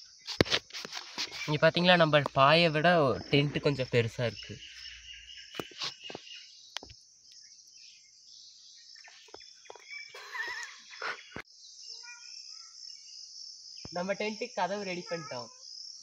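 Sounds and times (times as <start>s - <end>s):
bird chirps: 1.1s - 16.0s
high-pitched insect chirring: 9.0s - 16.0s.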